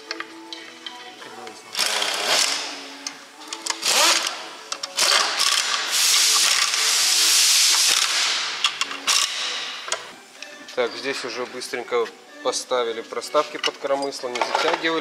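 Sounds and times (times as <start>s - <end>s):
pneumatic ratchet rattling: 1.8s - 2.7s, 3.6s - 9.7s
hissing exhaust air: 5.6s - 8.7s.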